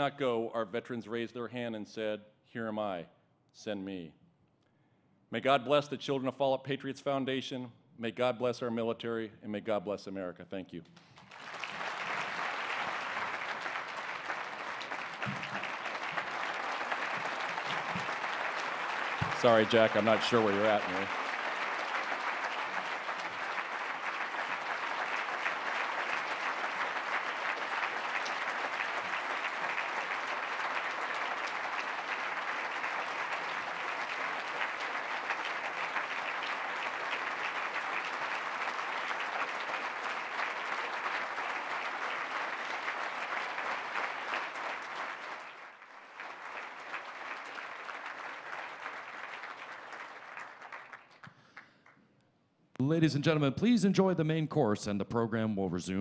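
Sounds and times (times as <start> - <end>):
large audience applauding: 11.1 - 52.0.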